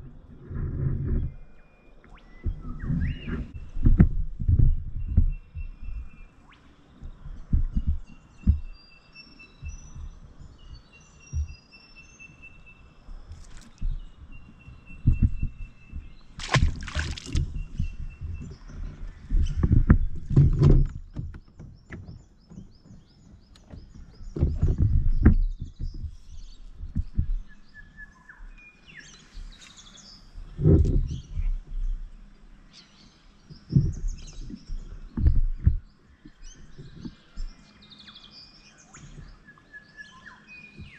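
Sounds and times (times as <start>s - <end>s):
birds whistling and chirping: 0.8s - 40.9s
low thumps from kayak: 2.4s - 8.9s, 9.5s - 11.7s, 13.0s - 28.6s, 29.4s - 32.1s, 33.5s - 37.6s.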